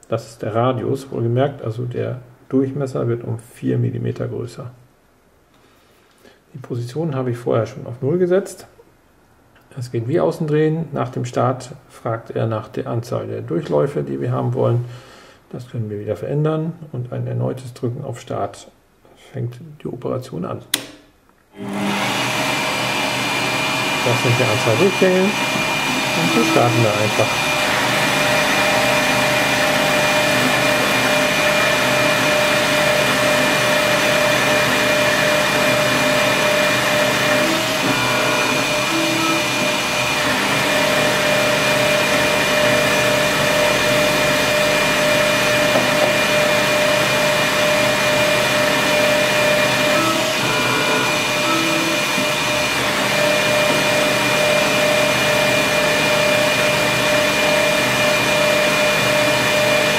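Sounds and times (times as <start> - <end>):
lathe motor hum and whine: 21.6 - 59.9
short higher tones: 23.8 - 56.3.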